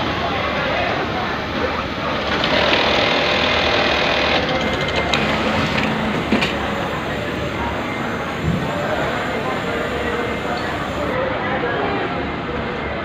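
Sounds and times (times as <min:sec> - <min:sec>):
sewing machine whine: 0:02.2 - 0:11.2
machine clicks: 0:02.3 - 0:11.2
machine knock: 0:02.5 - 0:11.0.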